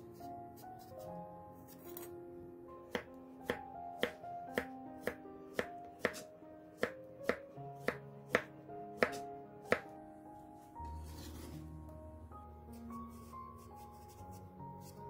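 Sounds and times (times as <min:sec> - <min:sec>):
knife chopping on wooden board: 0:02.9 - 0:09.9.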